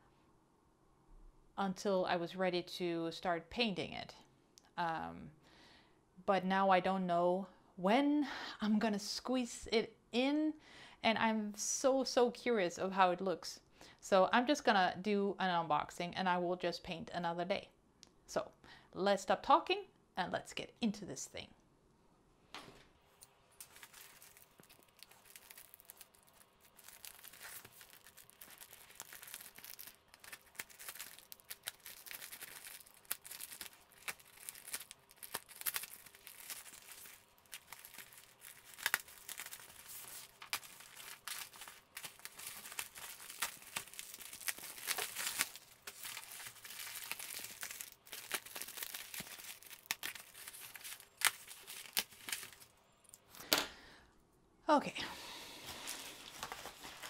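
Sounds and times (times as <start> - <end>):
plastic film crinkling and tearing: 23.6 - 52.8, 55.6 - 57.0.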